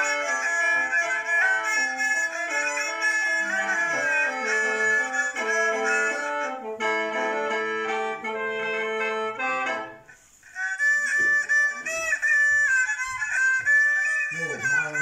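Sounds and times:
mouth organ melody over drone: 0.0s - 10.1s
sliding mouth organ melody: 0.0s - 15.0s.

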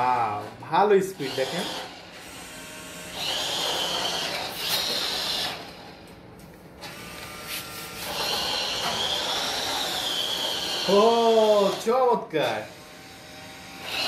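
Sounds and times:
toy car electric motor whining: 1.2s - 6.0s, 6.8s - 12.0s, 12.7s - 14.0s.

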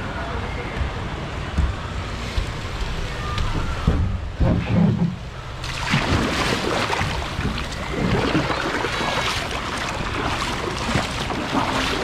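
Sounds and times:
water splashing and churning: 2.1s - 12.0s.

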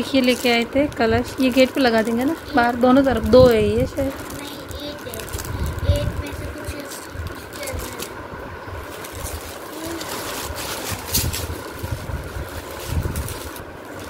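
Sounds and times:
plastic bag crinkling: 0.0s - 8.2s, 8.8s - 14.0s.

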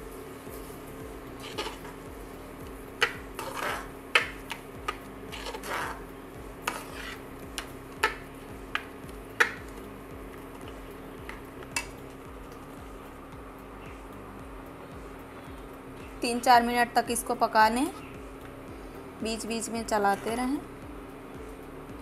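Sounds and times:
low hum: 0.0s - 22.0s
metal spatula scraping a pan: 1.4s - 2.0s, 3.0s - 4.4s, 5.3s - 7.3s.

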